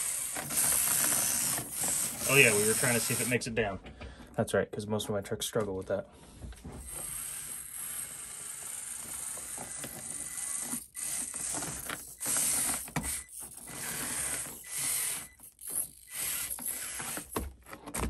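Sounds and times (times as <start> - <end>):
small electric motors whirring: 0.0 - 3.5, 6.8 - 17.7
tires clicking and scraping on rock: 0.0 - 4.2.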